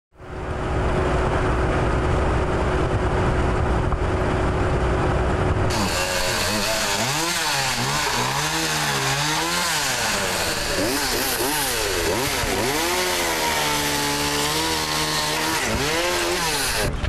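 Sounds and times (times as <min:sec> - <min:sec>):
steady rumbling hum: 0:00.2 - 0:17.0
chainsaw revving: 0:05.7 - 0:17.0.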